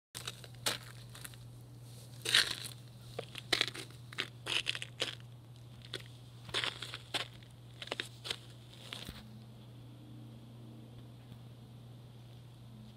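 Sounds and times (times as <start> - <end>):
footsteps crunching on snow: 0.2 - 5.2, 5.8 - 9.2
steady low hum: 0.2 - 12.9.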